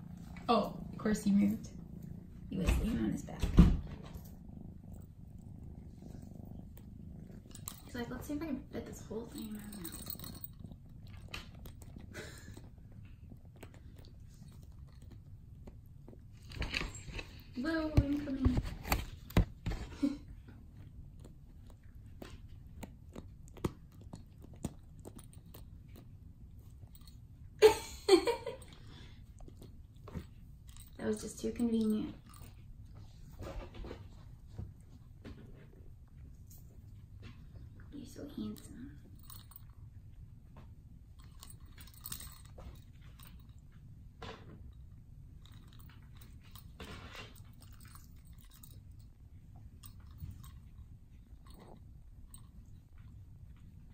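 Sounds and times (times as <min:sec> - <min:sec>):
kitten gnawing on toy: 0:03.9 - 0:08.5, 0:09.9 - 0:17.5, 0:20.3 - 0:27.6, 0:28.6 - 0:31.0, 0:44.6 - 0:53.7.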